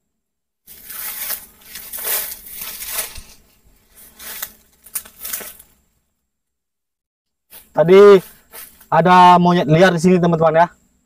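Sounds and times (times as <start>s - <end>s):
dry leaves rustling and crunching: 0.7s - 5.8s.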